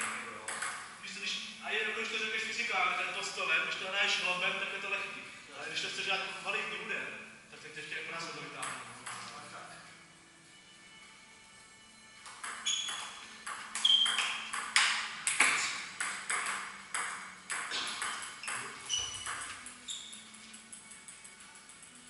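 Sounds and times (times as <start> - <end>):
table tennis ball tapping: 0.0 - 0.9, 8.6 - 9.3, 12.2 - 21.9.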